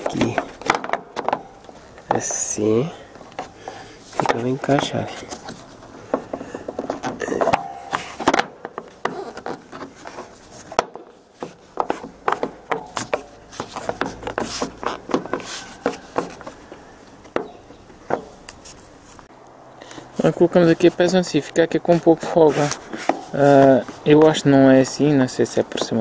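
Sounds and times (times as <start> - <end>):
clicks and knocks on plastic: 0.0 - 2.3, 3.3 - 18.3.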